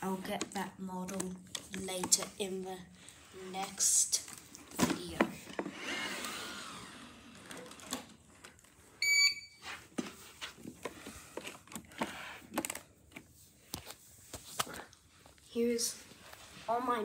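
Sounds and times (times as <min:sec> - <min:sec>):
electronic double beep: 0:09.0 - 0:09.6.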